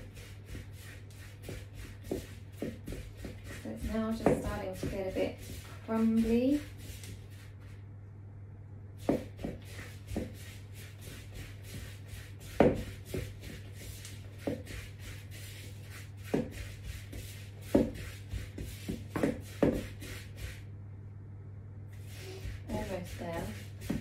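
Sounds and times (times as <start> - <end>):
utensil scraping mixing bowl: 0.0 - 7.6, 22.0 - 24.0
low steady hum: 0.0 - 24.0.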